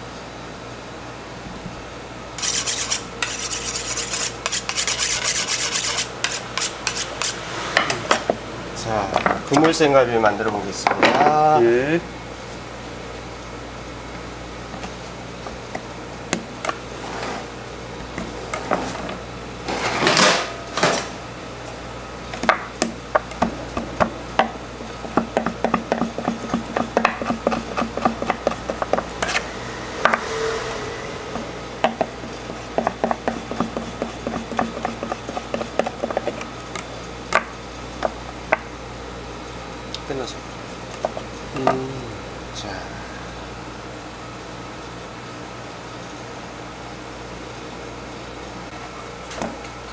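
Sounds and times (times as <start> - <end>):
steady low hum: 0.0 - 49.9
knife scraping strokes: 2.4 - 8.0, 27.2 - 29.5.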